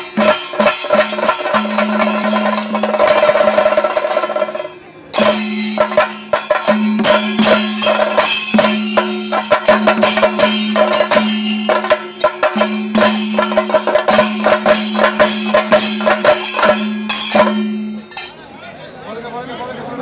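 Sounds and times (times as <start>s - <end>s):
drums: 0.0s - 18.4s
jingling clanking percussion: 0.0s - 18.5s.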